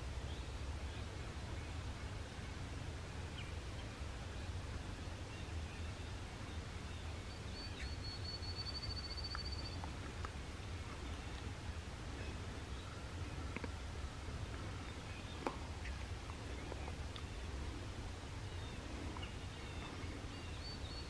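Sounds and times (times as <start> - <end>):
low outdoor rumble: 0.0 - 21.0
songbird trilling: 6.9 - 9.9.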